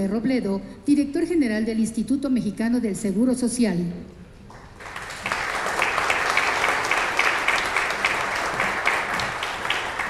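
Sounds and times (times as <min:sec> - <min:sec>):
audience applause: 0:04.5 - 0:10.0.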